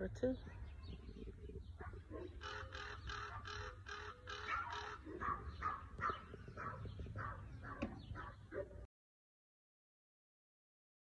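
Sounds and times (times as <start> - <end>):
bird calling: 0.5 - 8.7.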